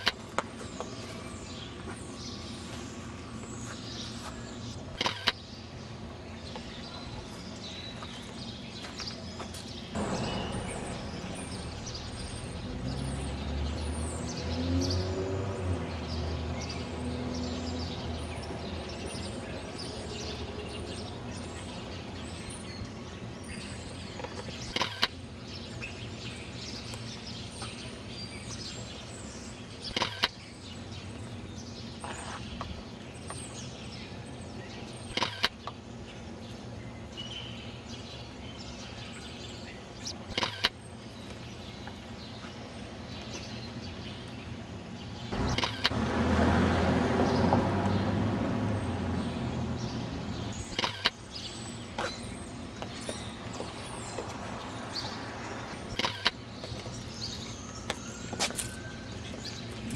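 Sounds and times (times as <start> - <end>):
traffic hum: 0.0 - 59.9
vehicle passing: 10.0 - 19.0, 45.3 - 51.0, 53.3 - 57.0
sharp clicks: 45.4 - 46.0.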